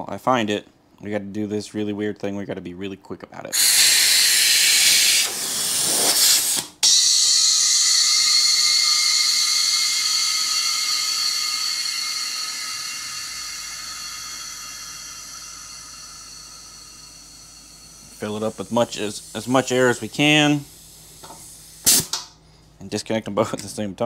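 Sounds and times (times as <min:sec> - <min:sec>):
compressed air hissing: 0:03.5 - 0:22.8
air hiss with faint whistle: 0:03.6 - 0:22.2.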